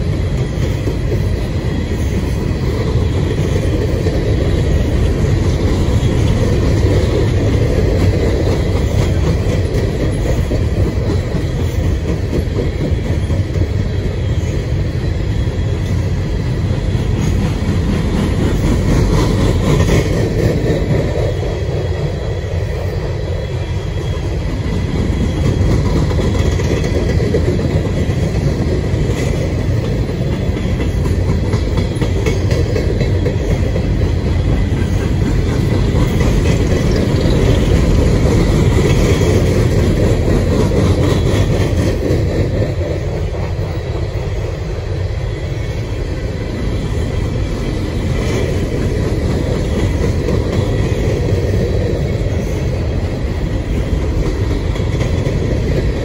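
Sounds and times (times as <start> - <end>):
wheels clattering over rails: 0.0 - 15.2, 16.9 - 44.5
freight train cars rolling past: 0.0 - 56.0.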